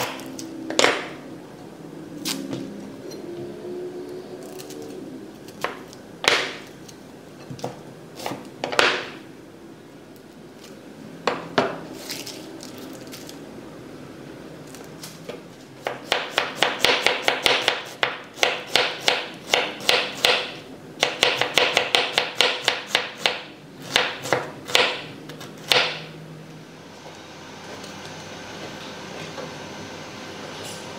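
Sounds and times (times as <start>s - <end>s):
knife chopping on wooden board: 15.8s - 26.1s.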